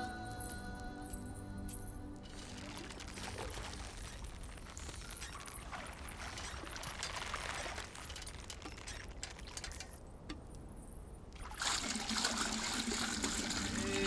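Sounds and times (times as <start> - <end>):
pulley clicks and creaks: 1.7 - 10.7
water pouring and trickling: 2.2 - 10.1, 11.3 - 14.0.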